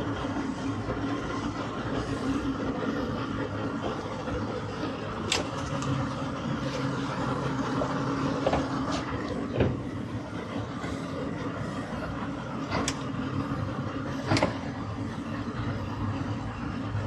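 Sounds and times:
boat engines idling: 0:00.0 - 0:17.0.

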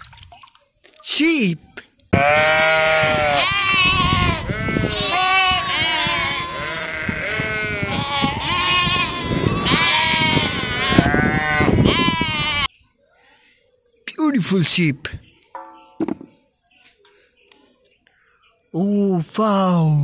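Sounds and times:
sheep and lambs bleating: 0:02.1 - 0:12.7.

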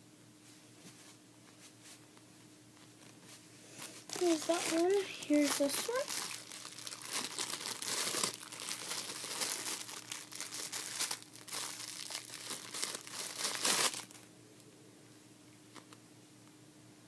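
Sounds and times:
plastic wrapper crinkling: 0:03.8 - 0:14.3.

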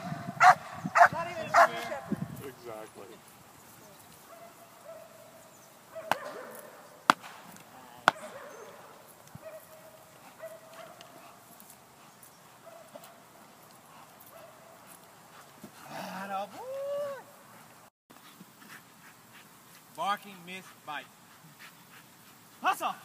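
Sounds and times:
stick striking sharp cracks: 0:06.1 - 0:08.4.

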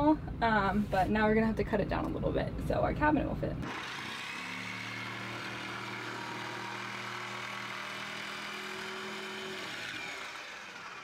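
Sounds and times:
power saw cutting plywood: 0:03.6 - 0:11.0.

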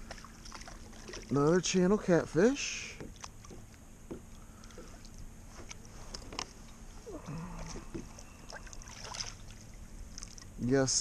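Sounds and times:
soft clicks and knocks of gear: 0:03.0 - 0:06.8
person humming low: 0:07.0 - 0:08.3.

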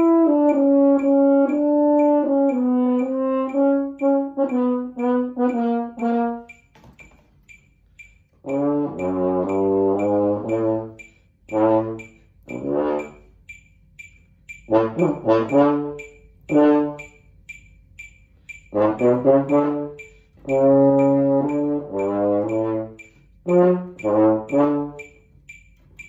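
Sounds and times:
french horn playing: 0:00.0 - 0:06.5, 0:08.5 - 0:13.2, 0:14.7 - 0:17.1, 0:18.8 - 0:25.1
metronome clicking: 0:00.0 - 0:26.0.

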